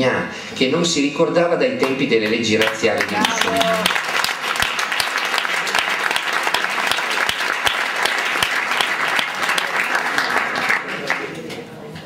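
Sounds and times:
audience applauding: 1.8s - 11.5s
loud close claps: 1.8s - 11.6s.

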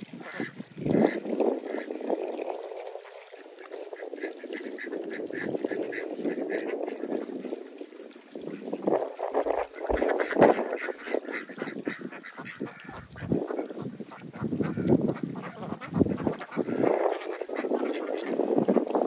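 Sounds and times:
waterfowl quacking and honking: 0.0s - 19.0s.

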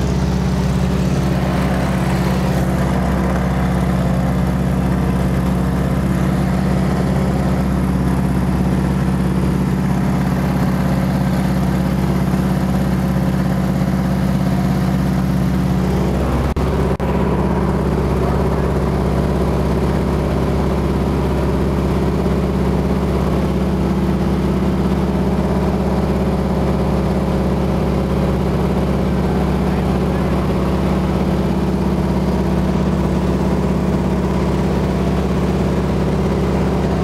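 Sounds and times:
plane engine and propeller droning: 0.0s - 37.0s.

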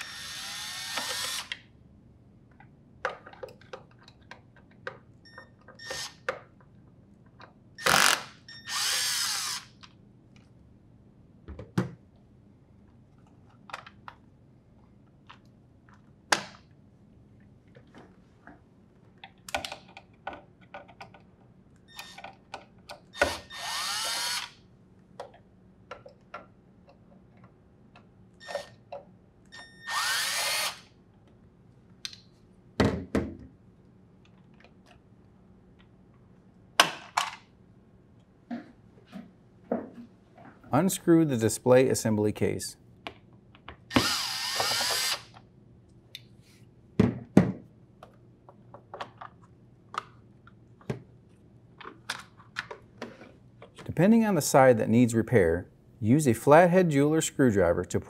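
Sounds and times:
cordless drill spinning out screws: 0.0s - 1.5s, 7.8s - 9.7s, 23.2s - 24.6s, 29.8s - 30.8s, 43.9s - 45.3s
plastic parts clicking and knocking: 2.6s - 6.7s, 19.2s - 23.4s, 25.2s - 29.1s, 47.0s - 51.1s.

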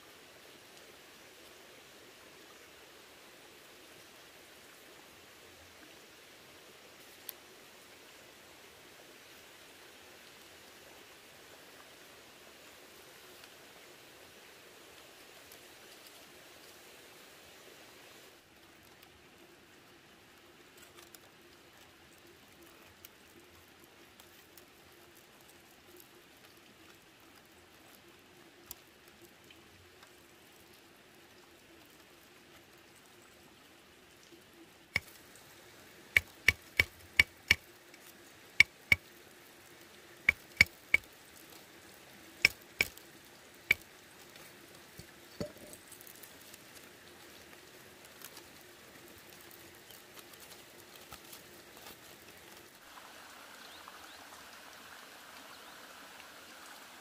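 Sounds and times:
bamboo sticks clicking: 35.0s - 35.2s, 36.2s - 37.7s, 40.3s - 41.1s, 42.4s - 43.0s, 43.7s - 43.9s.

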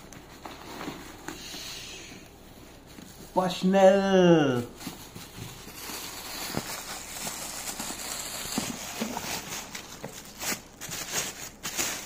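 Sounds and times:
plastic bag crinkling: 4.6s - 12.0s.

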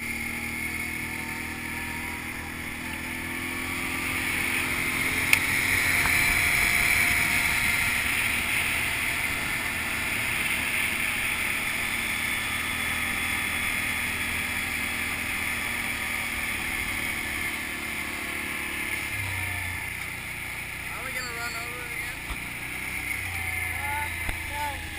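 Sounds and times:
atv engine running: 0.0s - 24.9s.

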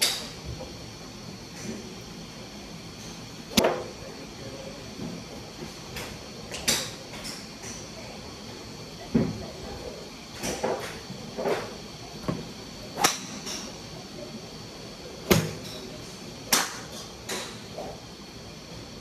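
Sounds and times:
golf clubs striking balls: 3.5s - 3.9s, 13.0s - 13.7s.

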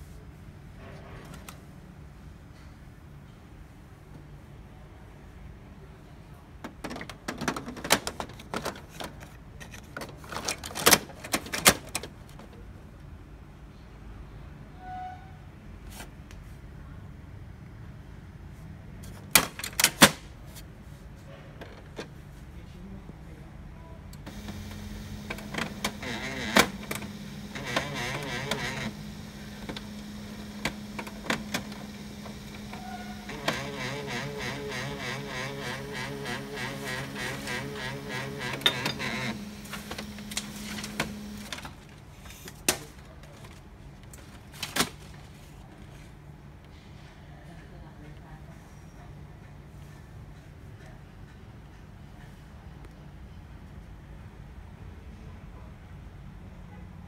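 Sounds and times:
plastic clicks and knocks: 6.6s - 12.5s
printer humming: 24.2s - 42.2s.

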